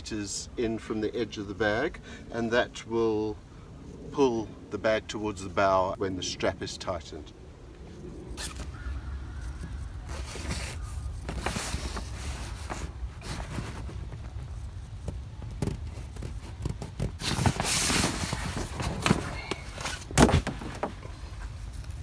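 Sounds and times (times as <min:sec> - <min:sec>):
fabric rustling and scraping: 0:10.0 - 0:22.0.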